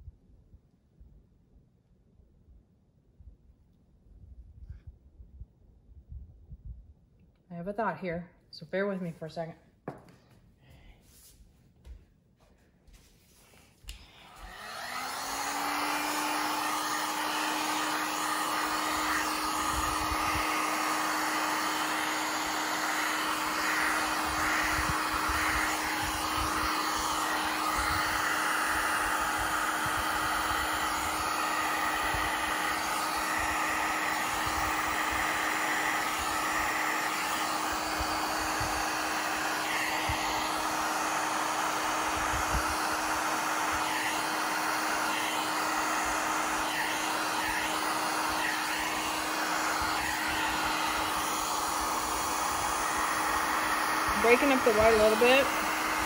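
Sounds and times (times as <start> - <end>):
heat gun fan blowing: 13.1 - 56.0.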